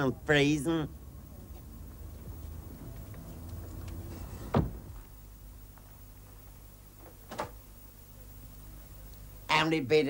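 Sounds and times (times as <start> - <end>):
low steady hum: 0.0 - 10.0
door shutting thump: 4.4 - 5.0, 7.0 - 7.6.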